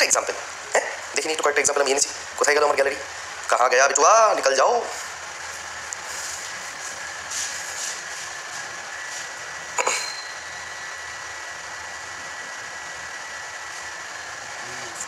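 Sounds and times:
room noise hiss: 0.0s - 15.0s
faint high steady tone: 9.8s - 11.6s.

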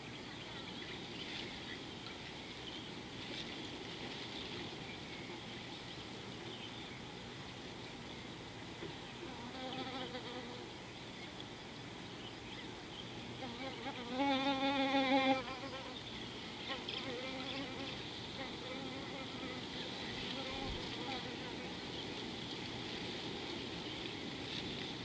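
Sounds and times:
flying insect buzzing: 13.4s - 16.0s, 16.6s - 21.8s.

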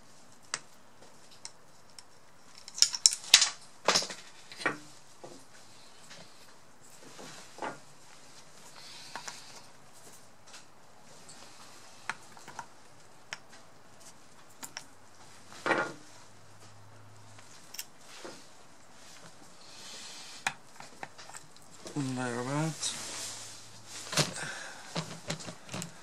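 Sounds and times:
small metal parts clicking: 1.3s - 4.6s.

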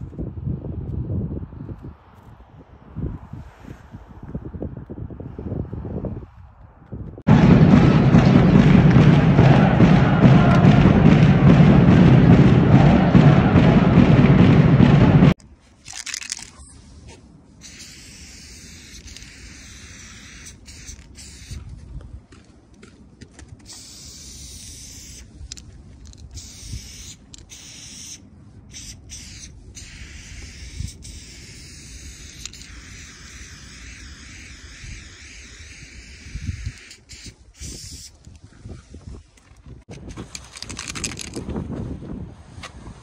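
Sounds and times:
low rumble: 6.7s - 15.4s
spray-paint can hissing: 17.6s - 21.6s, 23.6s - 25.6s, 26.2s - 38.2s.

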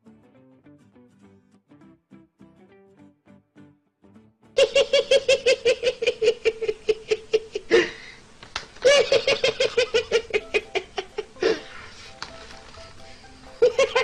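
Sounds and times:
person laughing high-pitched: 4.6s - 8.1s, 8.8s - 11.9s, 13.6s - 14.0s.

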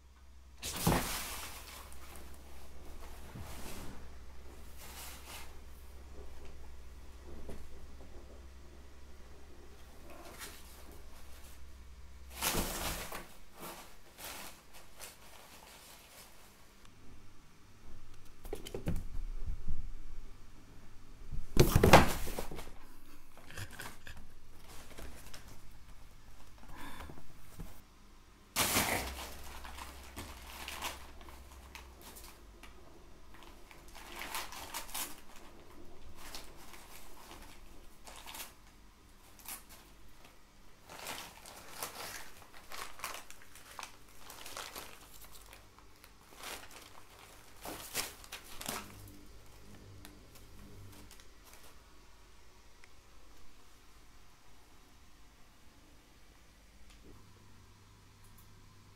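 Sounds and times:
paper and bubble wrap crinkling: 0.6s - 5.7s, 12.2s - 16.6s, 28.6s - 32.4s, 33.3s - 49.6s.

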